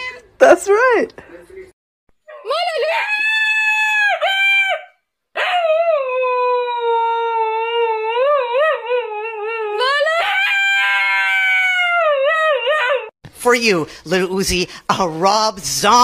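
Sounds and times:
dog howling: 0:02.3 - 0:13.1.

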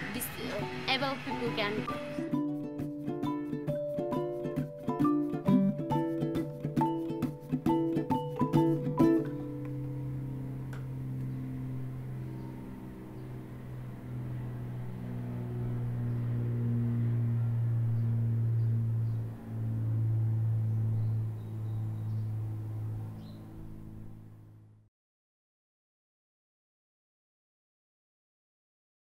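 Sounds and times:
held low notes with chords: 0:00.0 - 0:24.8
plucked string strums: 0:00.6 - 0:11.4.

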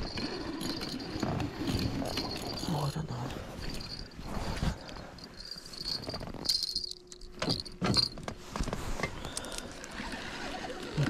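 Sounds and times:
light jangling: 0:00.0 - 0:08.2.

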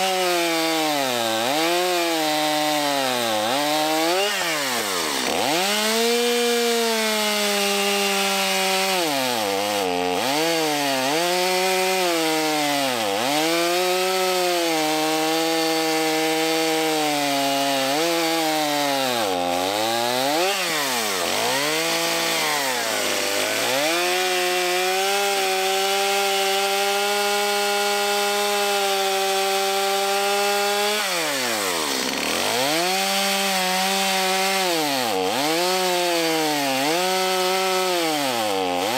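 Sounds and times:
chainsaw cutting wood: 0:00.0 - 0:38.9.

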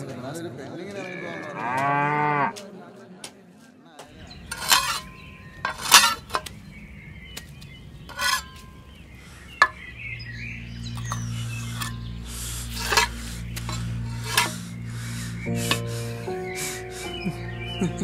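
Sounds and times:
clinks and scrapes: 0:04.4 - 0:06.6, 0:08.1 - 0:08.8, 0:10.9 - 0:14.7.

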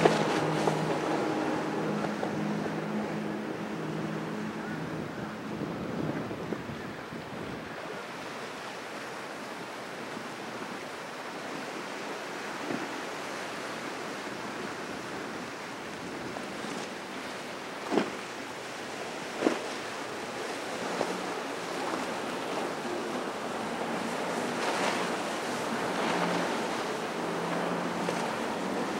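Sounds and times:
ocean surf rushing: 0:00.0 - 0:06.8, 0:11.4 - 0:28.9
wind noise on microphone: 0:04.6 - 0:08.0.

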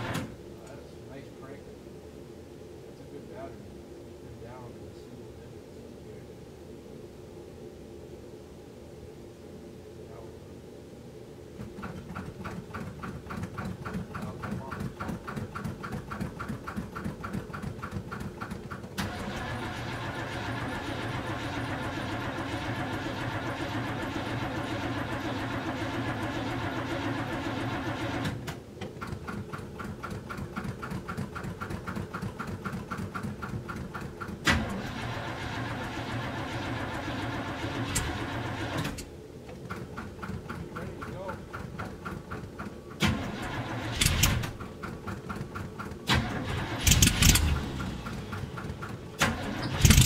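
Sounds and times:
engine running: 0:00.0 - 0:00.4, 0:11.6 - 0:50.0
starter motor cranking engine: 0:11.6 - 0:50.0.

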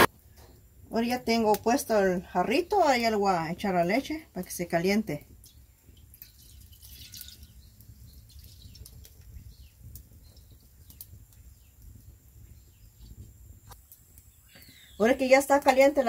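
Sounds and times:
wood fire crackling: 0:00.0 - 0:16.0
milk pouring into liquid: 0:05.5 - 0:09.0.

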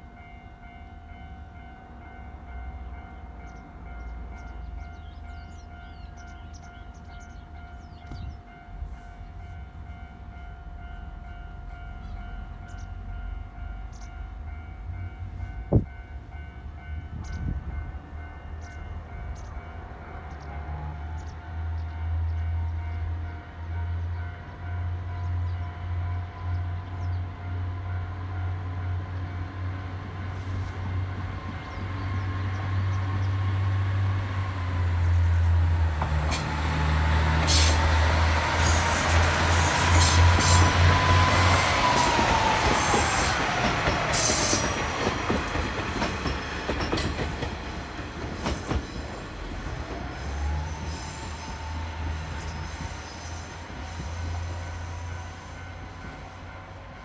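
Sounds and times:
train wheels clicking over rail joints: 0:35.9 - 0:54.6.

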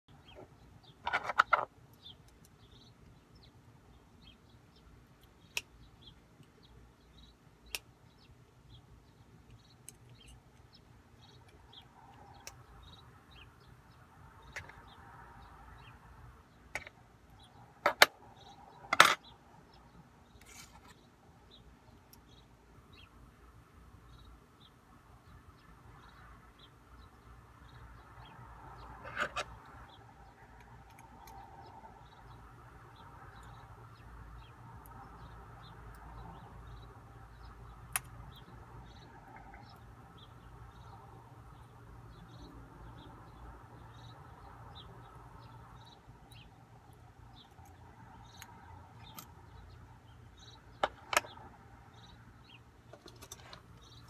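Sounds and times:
metal lock parts clicking: 0:52.9 - 0:54.0.

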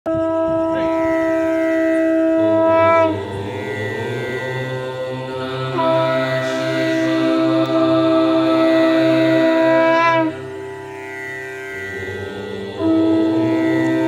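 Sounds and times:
conch shell blast: 0:00.1 - 0:03.3, 0:05.7 - 0:10.4, 0:12.8 - 0:14.0.

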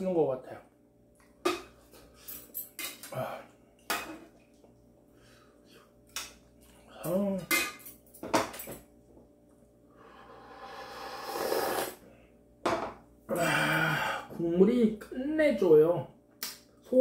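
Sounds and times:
slurping hot broth: 0:10.3 - 0:12.0.

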